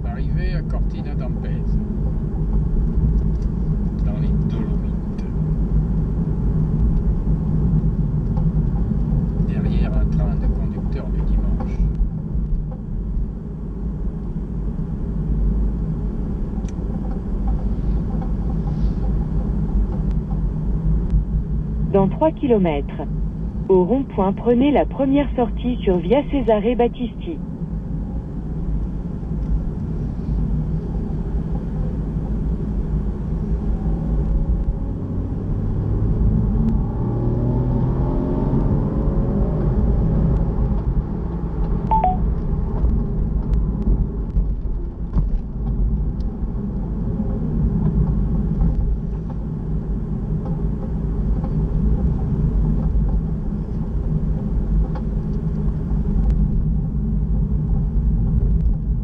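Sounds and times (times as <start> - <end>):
car engine and road noise: 0.0 - 59.0
brief beep: 41.9 - 42.2.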